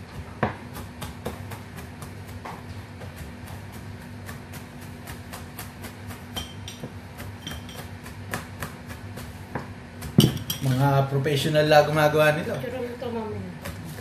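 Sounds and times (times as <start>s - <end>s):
knife chopping on board: 0.0s - 10.9s
steady low hum: 0.0s - 14.0s.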